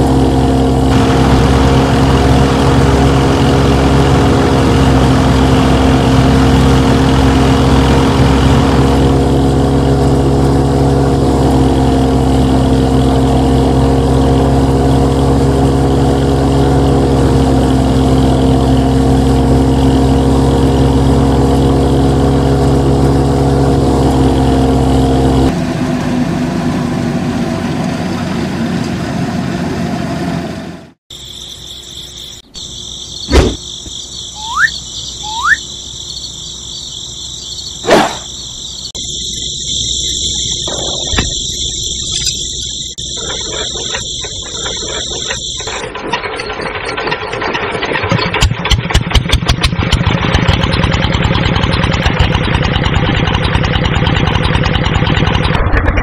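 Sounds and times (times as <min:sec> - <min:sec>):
steady high whine: 0:00.0 - 0:15.5
motor humming: 0:00.0 - 0:25.5, 0:38.4 - 0:46.5
noisy rattle: 0:00.7 - 0:12.4, 0:40.2 - 0:56.0
short rising chirps: 0:31.1 - 0:45.8.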